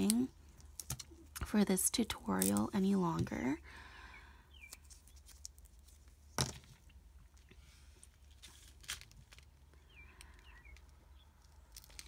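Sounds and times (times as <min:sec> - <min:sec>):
plastic sleeve crinkling: 0:04.7 - 0:06.3, 0:08.0 - 0:09.6, 0:11.4 - 0:12.0.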